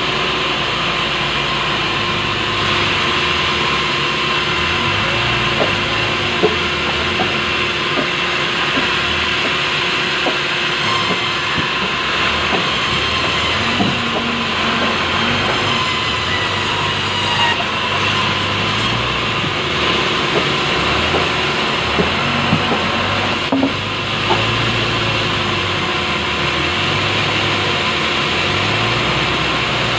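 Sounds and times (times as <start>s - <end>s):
band saw cutting log: 0.0s - 29.9s.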